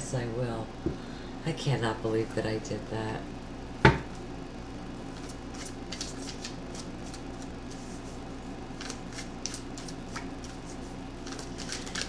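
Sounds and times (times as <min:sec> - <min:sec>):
low steady hum: 0:00.0 - 0:12.0
cards being shuffled: 0:05.2 - 0:12.0.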